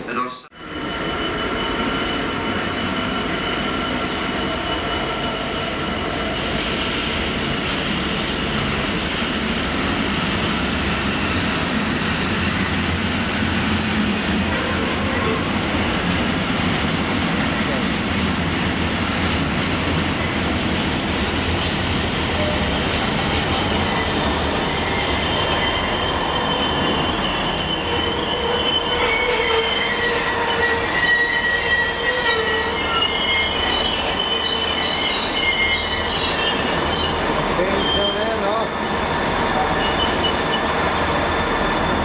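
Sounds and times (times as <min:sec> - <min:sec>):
train wheels rumbling on rails: 0:00.7 - 0:42.0
metal wheel squealing: 0:16.8 - 0:38.4.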